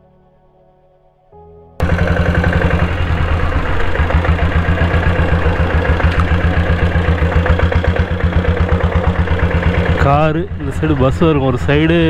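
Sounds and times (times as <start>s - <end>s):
motorcycle diesel engine running: 1.8s - 12.0s.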